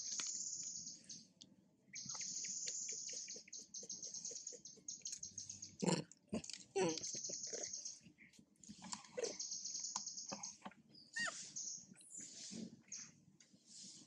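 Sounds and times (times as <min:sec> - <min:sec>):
monkey high squeak: 0:11.2 - 0:11.6.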